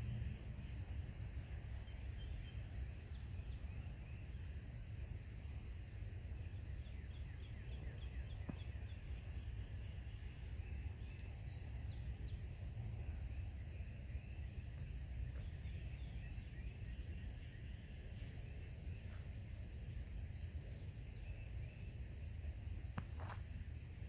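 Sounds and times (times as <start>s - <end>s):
steady low rumble: 0.0s - 24.0s
small birds chirping: 5.8s - 24.0s.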